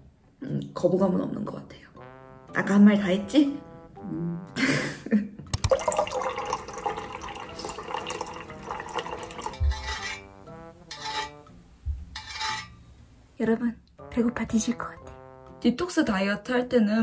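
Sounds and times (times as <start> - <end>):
soft background music: 0.0 - 17.0
water pouring into tumbler: 5.6 - 9.8.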